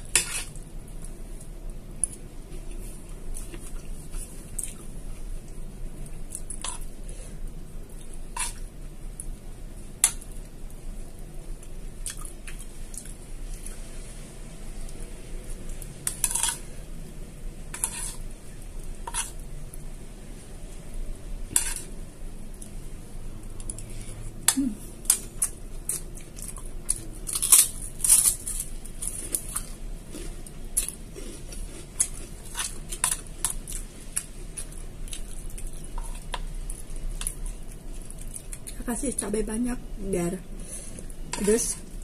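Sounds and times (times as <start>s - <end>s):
spoon scraping ceramic bowl: 17.7s - 18.2s.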